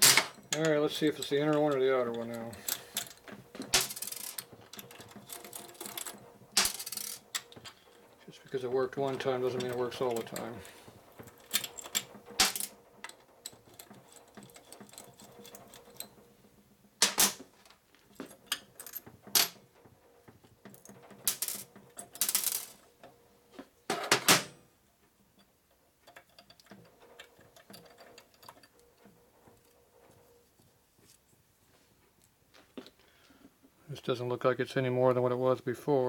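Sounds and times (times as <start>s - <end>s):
steel engine parts clinking: 0.0s - 16.3s, 25.3s - 31.2s.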